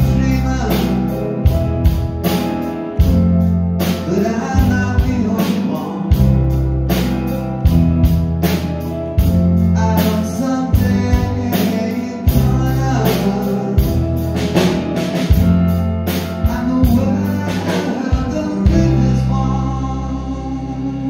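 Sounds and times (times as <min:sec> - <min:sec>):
man singing: 0:00.0 - 0:02.0, 0:03.8 - 0:06.9, 0:09.5 - 0:14.9, 0:16.1 - 0:21.0
electric keyboard: 0:00.0 - 0:21.0.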